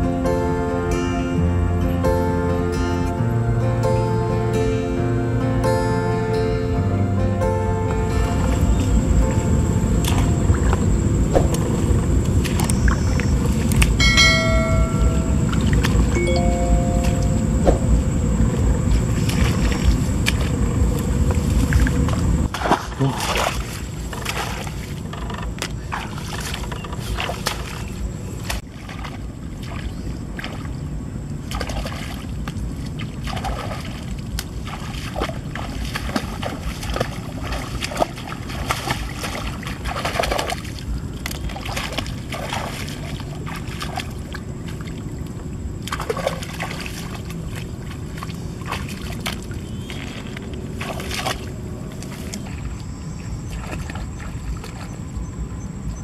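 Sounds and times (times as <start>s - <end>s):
low rumble: 0.0s - 56.0s
grass rustling: 31.4s - 54.7s
hands splashing in water: 31.5s - 45.0s.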